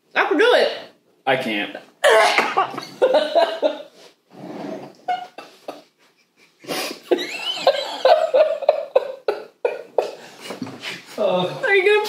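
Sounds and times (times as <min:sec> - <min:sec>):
woman coughing and choking: 0:02.0 - 0:02.9
man and woman laughing: 0:02.0 - 0:03.9, 0:05.0 - 0:11.0.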